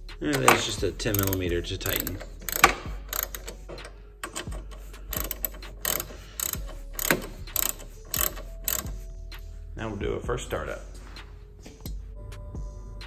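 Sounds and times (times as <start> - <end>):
socket ratchet clicking: 0.2 - 9.1.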